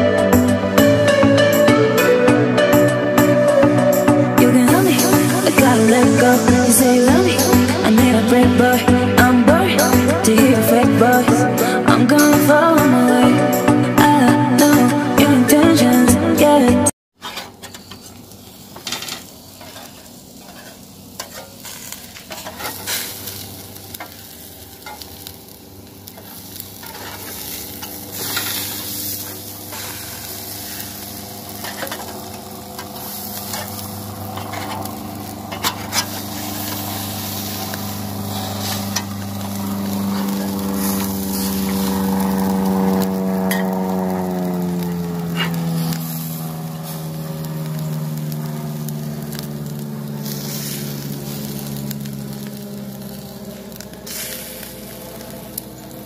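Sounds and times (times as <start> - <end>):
steady low drone: 0.0 - 16.4, 19.9 - 56.0
burgers sizzling on grill: 0.0 - 56.0
metal utensils clicking on grate: 17.2 - 24.2, 24.8 - 25.2, 26.1 - 36.9, 42.9 - 43.8.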